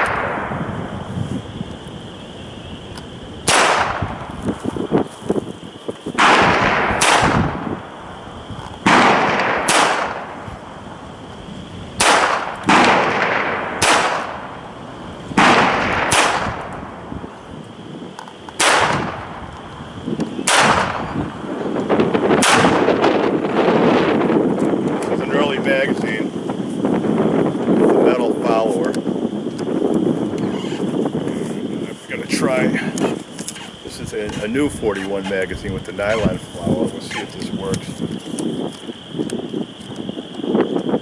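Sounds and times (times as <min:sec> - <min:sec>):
wind noise on microphone: 0:00.0 - 0:41.0
pistol shots cracking: 0:03.4 - 0:04.2, 0:06.2 - 0:07.7, 0:08.8 - 0:10.4, 0:12.0 - 0:14.6, 0:15.3 - 0:17.0, 0:18.6 - 0:19.4, 0:20.4 - 0:21.2, 0:22.4 - 0:23.2.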